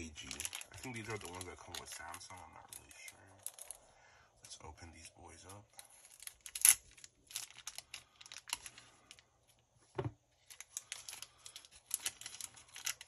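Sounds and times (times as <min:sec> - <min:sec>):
plastic bag crinkling: 0:00.0 - 0:03.8, 0:05.8 - 0:09.2, 0:10.4 - 0:13.0.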